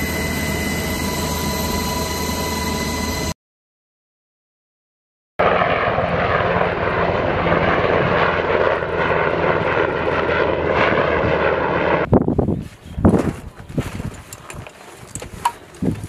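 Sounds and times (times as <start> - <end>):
helicopter flying overhead: 0.0 - 3.4, 5.4 - 12.1.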